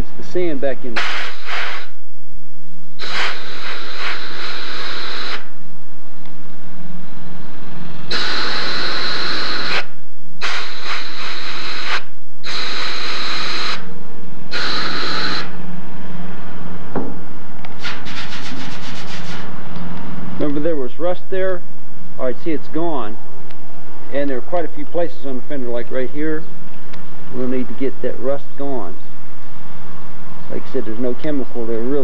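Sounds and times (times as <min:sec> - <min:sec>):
sandblaster hissing on steel: 0:01.0 - 0:02.0, 0:03.0 - 0:05.5, 0:08.1 - 0:13.9, 0:14.5 - 0:15.6, 0:17.8 - 0:19.5.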